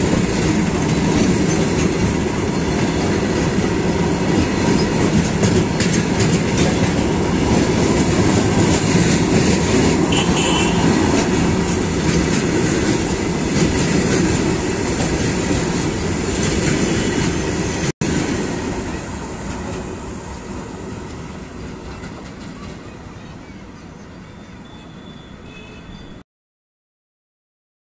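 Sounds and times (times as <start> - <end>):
freight train wheels on rails: 0.0 - 25.4.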